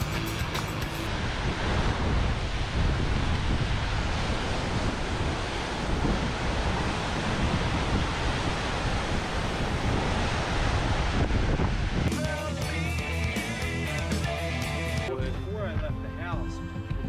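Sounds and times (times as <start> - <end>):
wind rumbling on microphone: 1.0 - 12.1.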